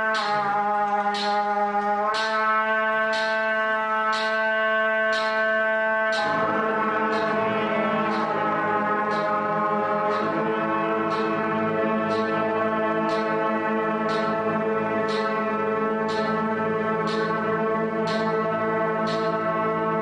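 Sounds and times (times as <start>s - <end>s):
metronome clicks: 0.0s - 2.4s, 3.0s - 4.5s, 5.1s - 6.4s, 8.1s - 10.4s, 14.1s - 15.5s, 16.1s - 16.4s, 17.1s - 17.5s, 18.1s - 18.5s, 19.1s - 19.4s
brass ensemble holding chords: 0.0s - 20.0s.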